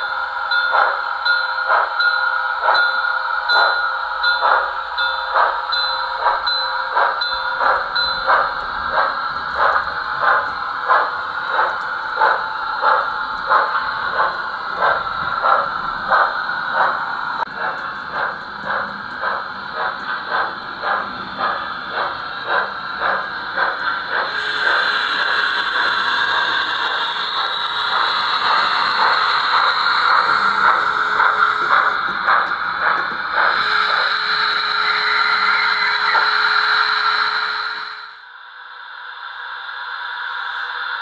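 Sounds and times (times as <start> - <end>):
model steam locomotive chuffing: 0.0 - 38.1.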